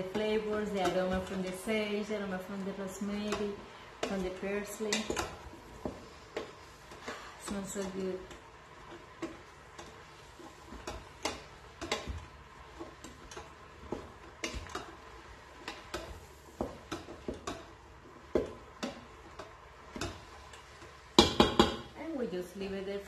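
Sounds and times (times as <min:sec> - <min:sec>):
spatula stirring vegetables: 0:00.0 - 0:22.0
spatula knocking metal pot: 0:15.6 - 0:21.9.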